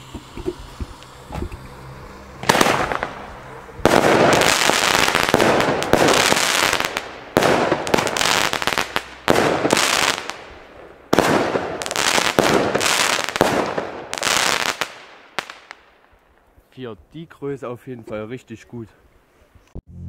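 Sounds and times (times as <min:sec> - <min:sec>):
firework shots reports: 0:00.0 - 0:15.9
crackling firework stars: 0:00.0 - 0:16.6.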